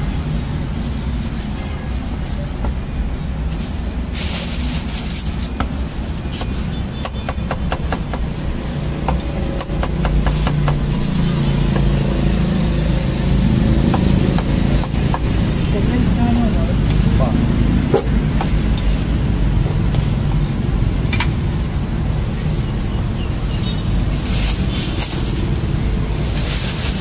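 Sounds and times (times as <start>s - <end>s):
street traffic: 0.0s - 27.0s
cleaver chopping on wooden block: 9.0s - 10.9s.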